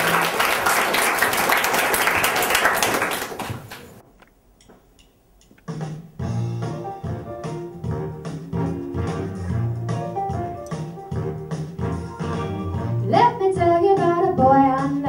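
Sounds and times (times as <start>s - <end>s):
audience applauding: 0.0s - 4.0s
instrumental song intro: 5.7s - 15.0s.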